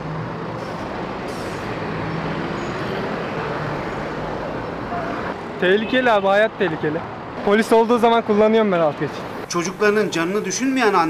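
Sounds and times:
cars driving past: 0.0 - 11.0.

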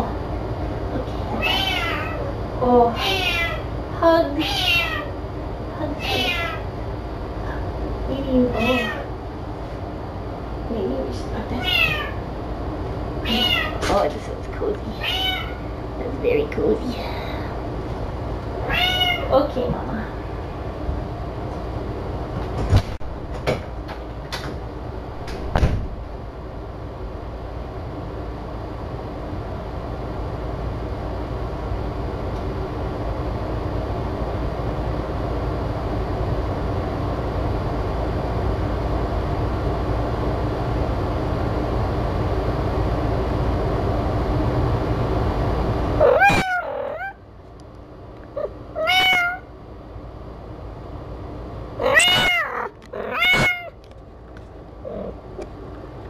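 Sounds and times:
cat meowing: 1.4 - 2.3, 3.0 - 3.7, 4.4 - 5.1, 6.0 - 6.6, 8.5 - 9.1, 11.6 - 12.2, 13.2 - 13.8, 15.0 - 15.7, 18.6 - 19.3, 46.0 - 47.2, 48.4 - 49.5, 51.8 - 53.8.

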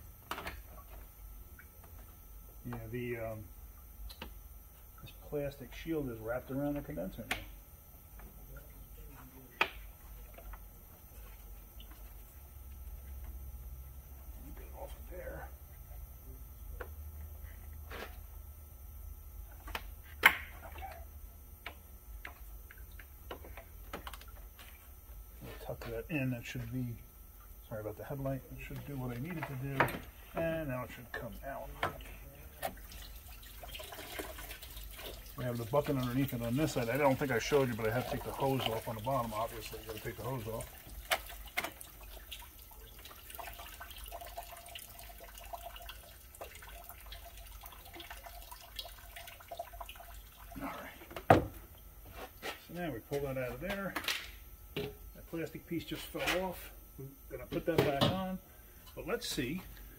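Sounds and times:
liquid trickling into bucket: 32.6 - 50.9.

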